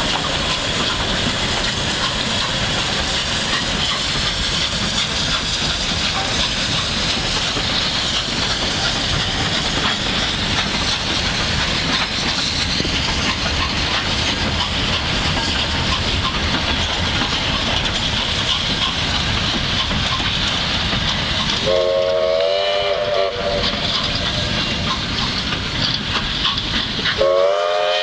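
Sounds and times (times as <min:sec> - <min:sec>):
train wheels clattering on rails: 0:00.0 - 0:28.0.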